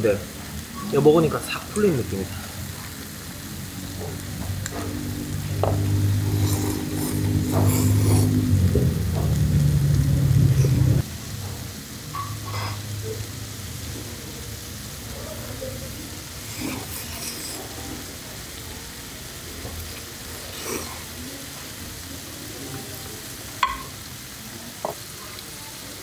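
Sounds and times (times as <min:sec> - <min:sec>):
loud low hum: 0:04.9 - 0:11.0
noodles slurped and chewed: 0:06.0 - 0:08.9, 0:16.4 - 0:18.1, 0:19.6 - 0:21.2.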